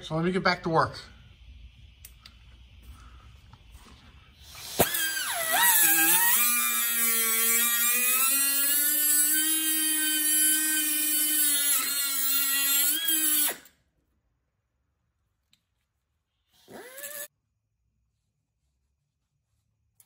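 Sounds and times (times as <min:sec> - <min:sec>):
cut-off grinder whining: 0:04.5 - 0:13.7, 0:16.6 - 0:17.3.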